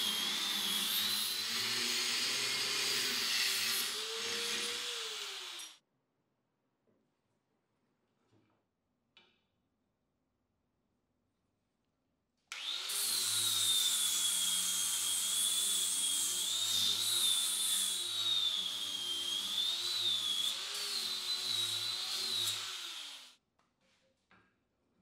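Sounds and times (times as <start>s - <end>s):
angle grinder grinding metal: 0.0s - 5.8s, 12.5s - 23.3s.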